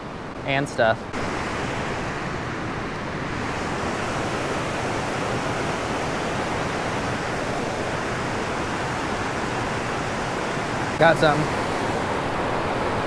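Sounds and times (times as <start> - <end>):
water rushing over dam spillway: 1.2 - 13.0.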